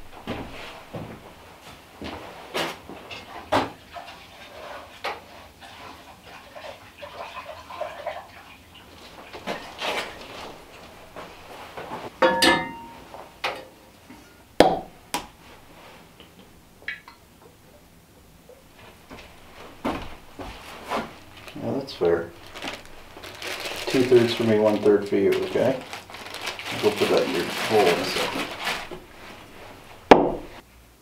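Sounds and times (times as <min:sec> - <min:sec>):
ringing metal clank: 0:12.2 - 0:13.0
pans and dishes clattering: 0:12.2 - 0:14.4.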